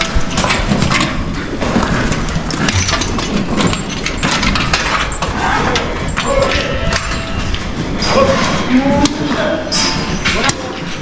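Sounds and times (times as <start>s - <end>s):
metallic clinks and knocks: 0.0s - 8.3s
cattle barn din: 0.0s - 11.0s.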